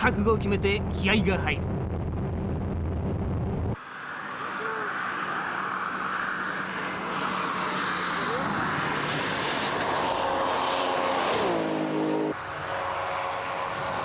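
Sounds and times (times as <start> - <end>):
wind and tyre rush: 0.0 - 14.0
race car engine passing by: 3.8 - 14.0.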